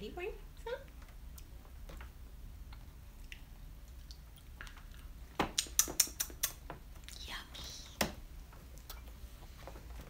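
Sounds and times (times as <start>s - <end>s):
baby mouth clicks and smacks: 2.7s - 7.2s
loud sharp mouth smacks: 3.2s - 7.2s.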